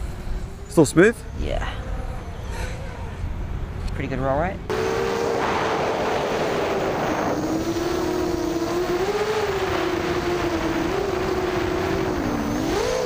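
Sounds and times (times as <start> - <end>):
quadcopter motors whining: 4.7 - 13.0
wind hiss: 4.7 - 13.0.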